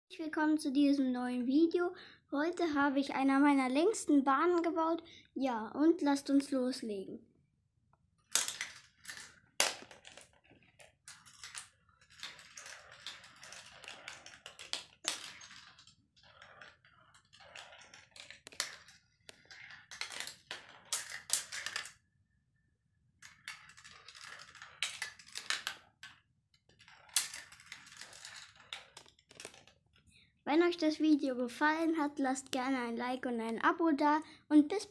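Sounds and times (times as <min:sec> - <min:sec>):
marbles clacking on plastic pieces: 0:08.2 - 0:22.0, 0:23.2 - 0:29.8
marbles rattling along plastic tracks: 0:08.2 - 0:22.0, 0:23.2 - 0:29.8.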